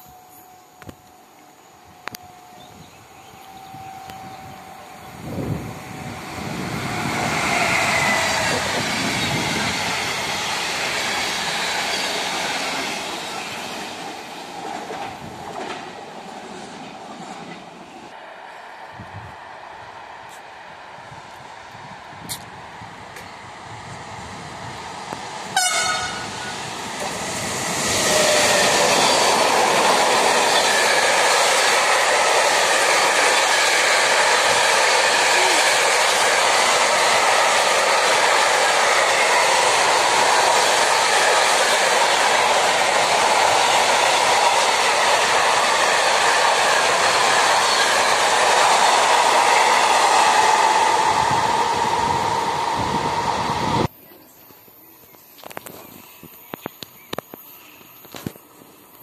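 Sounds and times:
train rushing and rumbling past: 0.0 - 54.0
train horn toot: 1.8 - 5.6, 25.5 - 26.6.

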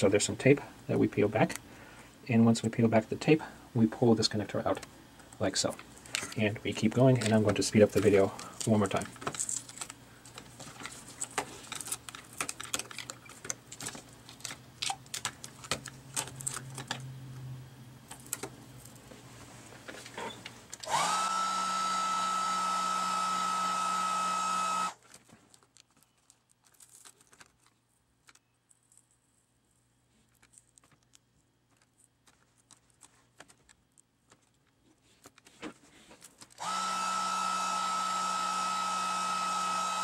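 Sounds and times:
hot-air blower whining: 20.8 - 25.0, 36.6 - 40.0
small clicks of parts handled: 25.1 - 29.2, 30.2 - 36.6.

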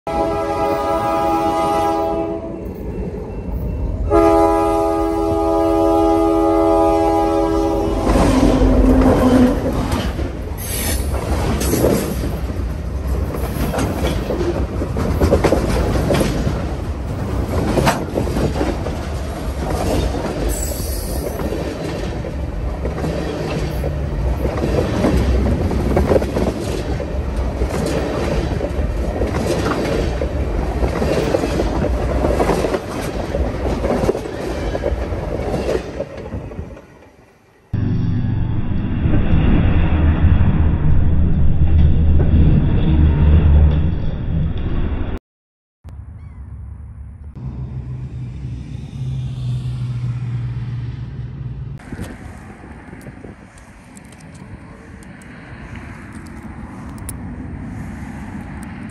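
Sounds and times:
locomotive air horn: 0.1 - 2.8, 4.0 - 9.8
train rumbling overhead: 0.1 - 45.2, 46.1 - 58.9.

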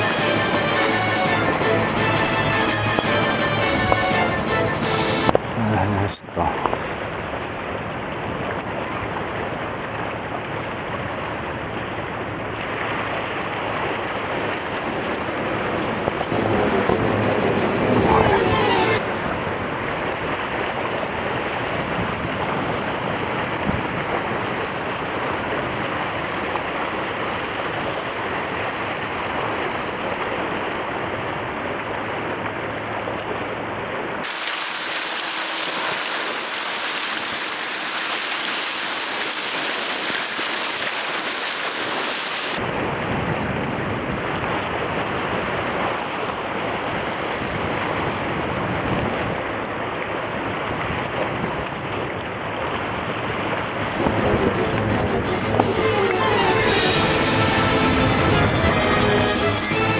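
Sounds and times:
wind buffeting microphone: 19.0 - 26.5, 42.6 - 49.6
waves washing against rocks: 34.2 - 55.3.

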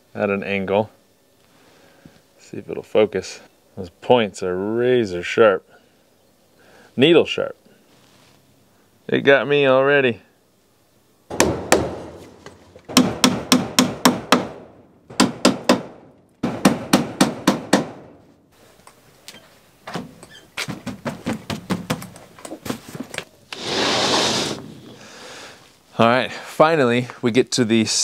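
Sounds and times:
hammer driving nails into wood: 11.3 - 18.2.

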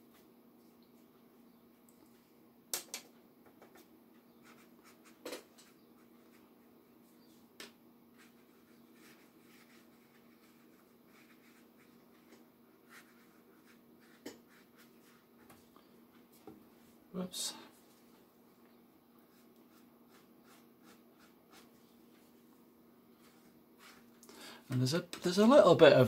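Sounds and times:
low room hum: 0.0 - 26.0
brush on paper: 4.3 - 7.2, 8.1 - 15.7, 19.2 - 22.4, 23.1 - 24.2.

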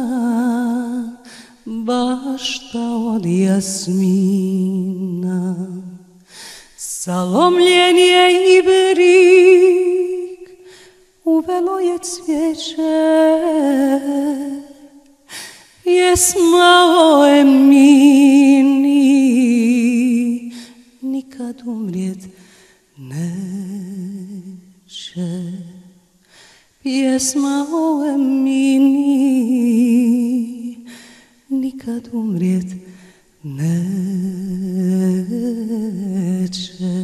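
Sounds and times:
person singing unaccompanied: 15.8 - 22.2, 26.9 - 30.8.

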